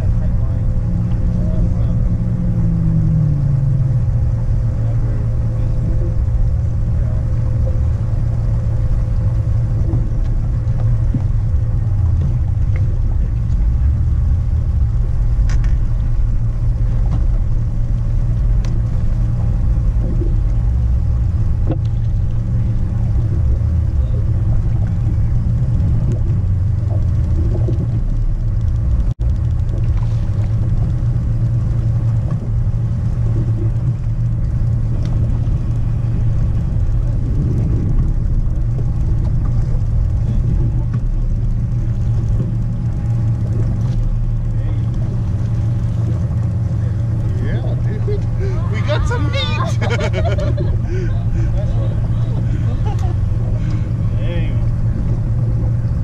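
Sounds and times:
outboard motor rumbling: 0.0 - 56.0
wind buffeting microphone: 0.0 - 56.0
faint ticks: 16.7 - 48.6, 50.3 - 56.0.

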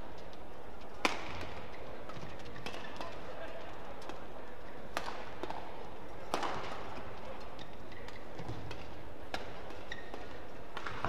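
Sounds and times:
arena hall hum: 0.0 - 11.0
rackets striking shuttlecock: 1.0 - 3.2, 4.9 - 11.0.

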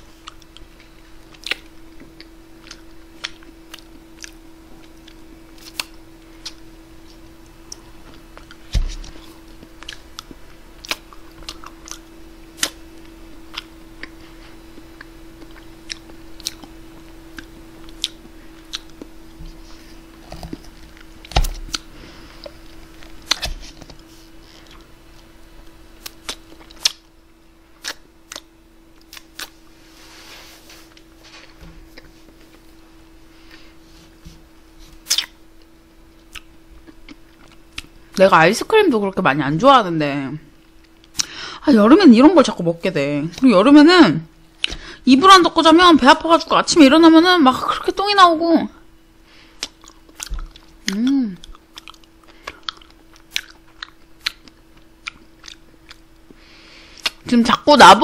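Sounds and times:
electrical hum: 0.0 - 58.0
mouth clicks and smacks: 35.0 - 35.4.

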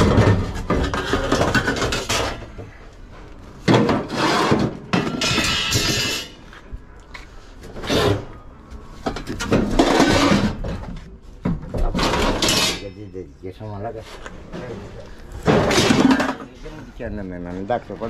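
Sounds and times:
scrap metal scraping on metal floor: 3.7 - 6.4, 9.6 - 10.7.

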